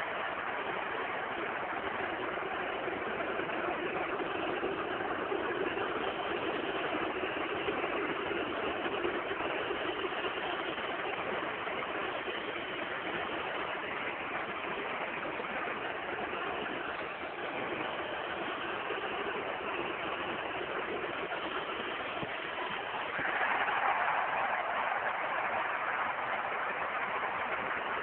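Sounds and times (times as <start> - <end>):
stadium crowd din: 21.7 - 28.0.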